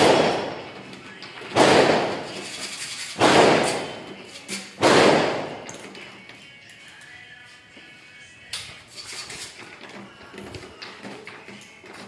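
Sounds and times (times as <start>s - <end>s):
gunshots echoing: 0.0s - 0.8s, 1.5s - 2.4s, 3.2s - 4.2s, 4.8s - 5.7s.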